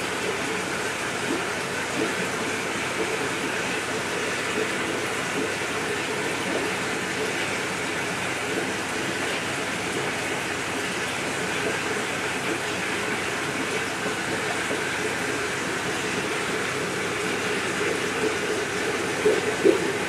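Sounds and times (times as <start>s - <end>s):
aquarium water bubbling: 0.0s - 20.0s.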